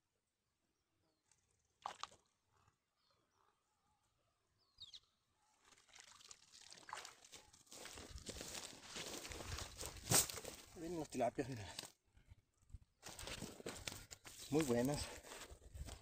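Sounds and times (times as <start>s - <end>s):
water splashing and trickling: 1.8s - 2.2s, 5.6s - 8.7s.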